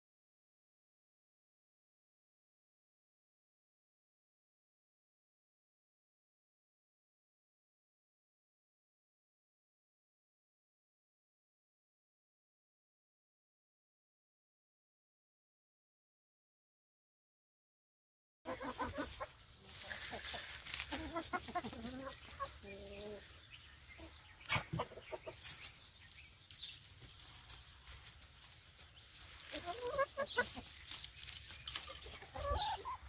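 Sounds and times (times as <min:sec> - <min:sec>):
hens clucking: 0:18.5 - 0:33.0
rustling in straw: 0:18.5 - 0:33.0.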